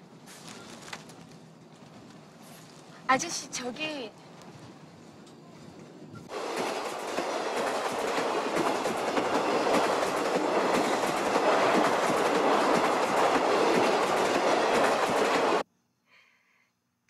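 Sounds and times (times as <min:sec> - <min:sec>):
train rushing past: 0:01.9 - 0:15.6
wheels clattering over rails: 0:05.6 - 0:15.6.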